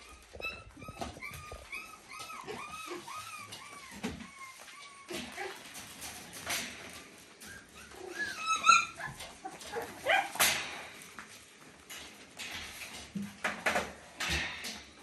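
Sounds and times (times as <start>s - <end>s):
puppy yelping: 0.0s - 5.7s, 7.4s - 10.4s
paws scrabbling on hard floor: 0.0s - 7.0s
puppies yipping and squealing: 0.0s - 10.5s.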